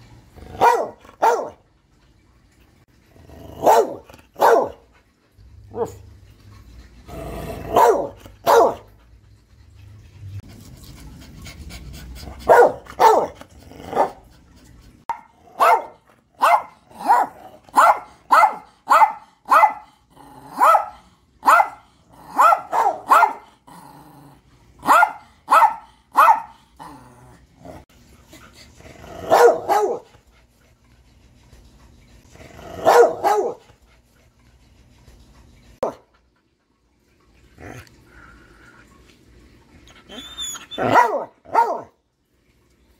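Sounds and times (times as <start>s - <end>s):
dogs barking: 0.5s - 1.6s, 3.6s - 4.9s, 7.6s - 9.0s, 12.4s - 14.2s, 15.1s - 19.9s, 20.5s - 23.5s, 24.8s - 26.6s, 29.2s - 30.1s, 32.7s - 33.7s, 40.1s - 42.0s.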